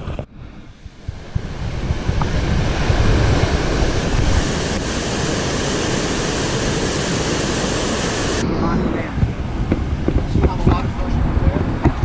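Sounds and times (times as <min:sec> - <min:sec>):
wind buffeting microphone: 0:00.0 - 0:12.0
whitewater rushing: 0:01.0 - 0:09.0.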